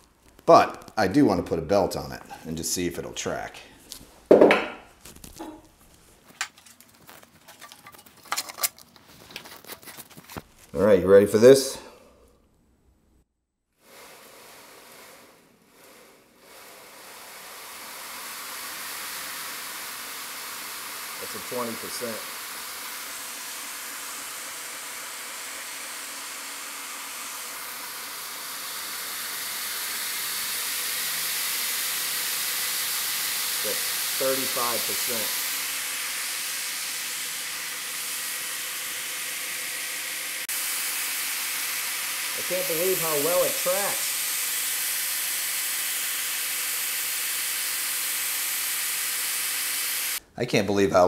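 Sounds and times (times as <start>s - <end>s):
belt grinder running: 14.0s - 50.2s.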